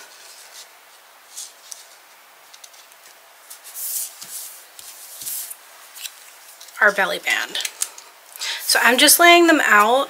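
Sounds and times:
cardstock rustling: 0:00.1 - 0:06.9.

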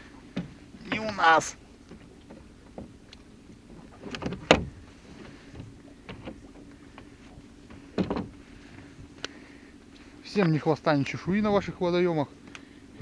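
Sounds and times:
oar knocking and creaking in oarlock: 0:00.3 - 0:03.0, 0:03.7 - 0:08.4.

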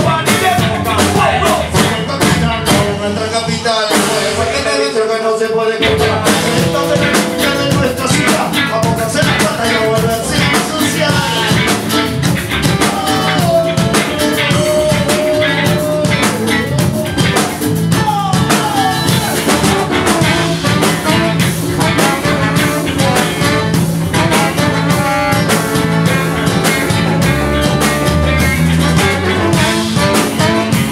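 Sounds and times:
ska reggae band playing: 0:00.0 - 0:30.9
trombone: 0:05.8 - 0:18.0, 0:19.0 - 0:30.9.

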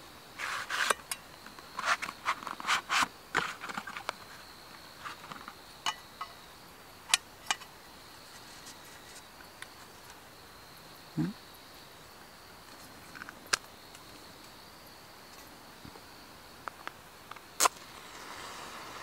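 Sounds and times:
high insect trill: 0:00.0 - 0:19.0
box tray scraping and rustling: 0:00.4 - 0:01.1, 0:01.8 - 0:04.1.

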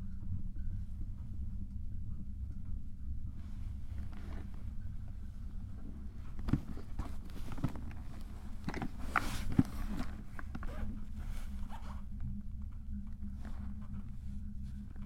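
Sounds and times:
cable car rumbling: 0:00.0 - 0:15.0
cabin clicks and creaks: 0:03.9 - 0:14.2.

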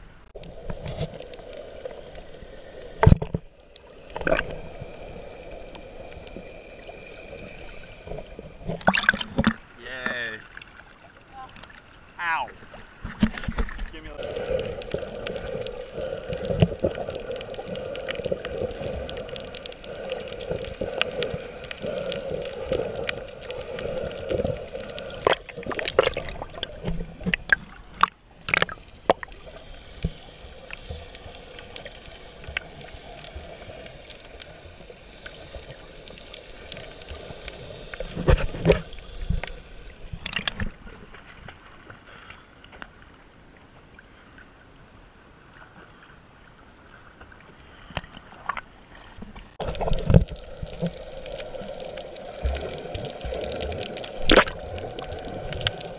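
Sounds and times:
water gurgling: 0:00.0 - 0:41.2, 0:49.5 - 0:55.9
water splashes: 0:00.4 - 0:44.3, 0:45.4 - 0:55.9
muffled underwater noise: 0:13.6 - 0:25.3.

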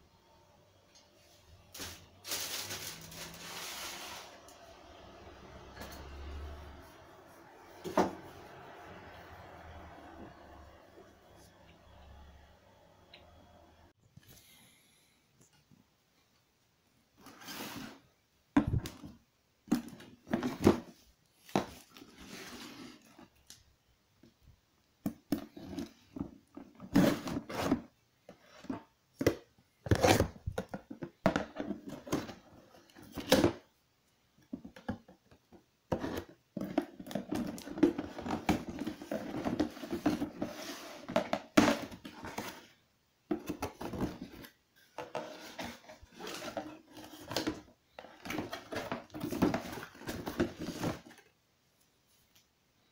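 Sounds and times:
cardboard rustling: 0:01.8 - 0:04.4, 0:35.9 - 0:51.3.

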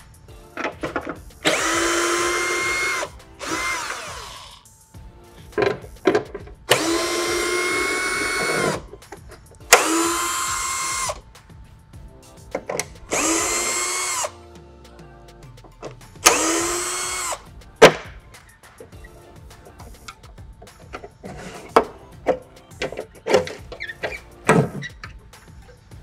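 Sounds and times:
cordless drill motor whine: 0:01.4 - 0:04.6, 0:06.7 - 0:08.8, 0:09.8 - 0:11.2, 0:13.1 - 0:14.3, 0:16.2 - 0:17.4.

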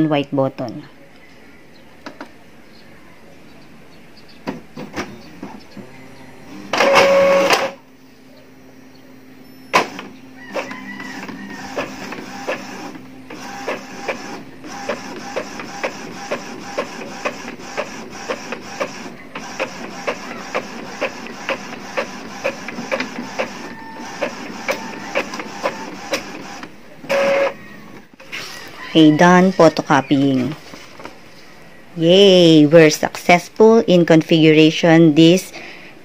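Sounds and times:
printer hum: 0:04.7 - 0:28.2
printer whir: 0:05.7 - 0:07.8, 0:09.7 - 0:28.2
printer clicks: 0:11.7 - 0:27.5.

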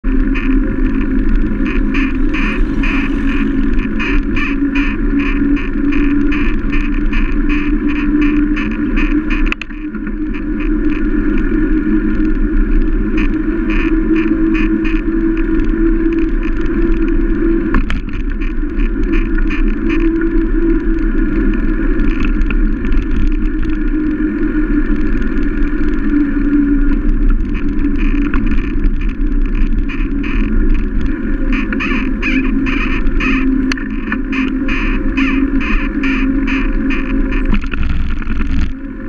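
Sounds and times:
bicycle rattling: 0:00.0 - 0:39.0
wind rush: 0:00.0 - 0:39.0
tyres rolling on wet road: 0:00.1 - 0:07.8.

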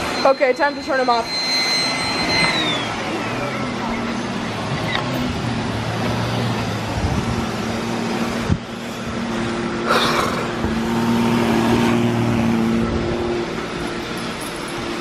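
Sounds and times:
robot vacuums whirring: 0:00.0 - 0:05.2
low hum: 0:00.0 - 0:09.9.

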